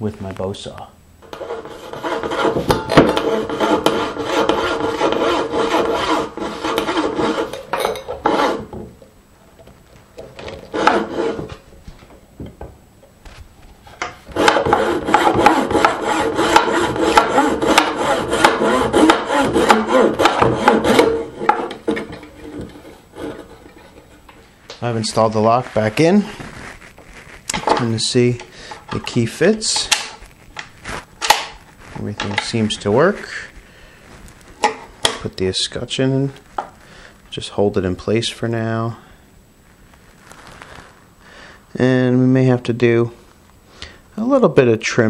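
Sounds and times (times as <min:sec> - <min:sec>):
bow saw cutting wood: 0:01.2 - 0:08.8, 0:10.5 - 0:11.6, 0:14.3 - 0:24.1.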